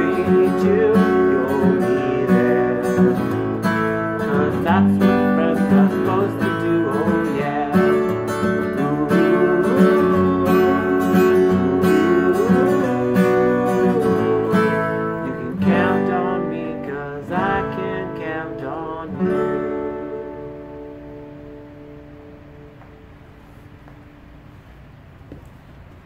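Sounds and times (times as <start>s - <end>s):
acoustic guitar strumming: 0.0s - 24.5s.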